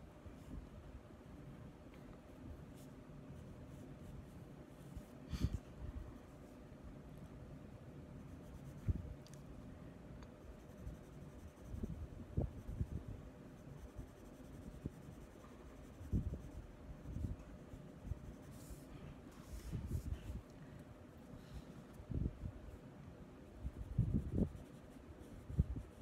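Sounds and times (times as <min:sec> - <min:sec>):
pencil scratching on paper: 0:10.4 - 0:12.9, 0:13.5 - 0:20.1.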